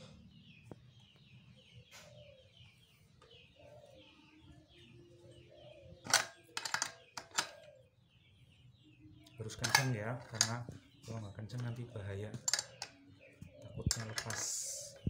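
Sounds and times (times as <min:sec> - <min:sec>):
small birds chirping: 0:00.0 - 0:15.0
spanner clicking on metal: 0:06.1 - 0:07.6, 0:09.6 - 0:10.6, 0:12.4 - 0:13.0, 0:13.9 - 0:14.5.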